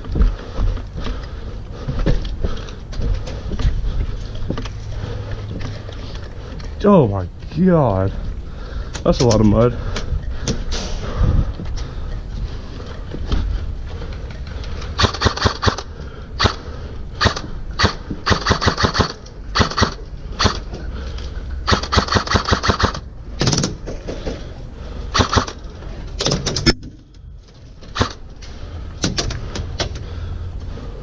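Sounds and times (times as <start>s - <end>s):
airsoft rifle firing: 15.0s - 16.6s, 17.2s - 20.7s, 21.6s - 23.8s, 25.1s - 25.6s, 27.9s - 28.2s.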